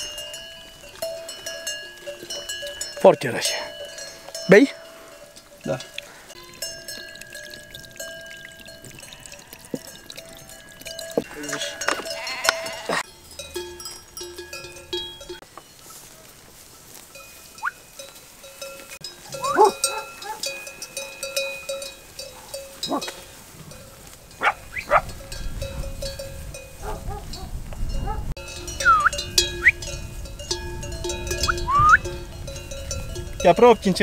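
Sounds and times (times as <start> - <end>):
sheep bells clanking: 0.0 - 34.0
sheep bleating: 11.2 - 13.1.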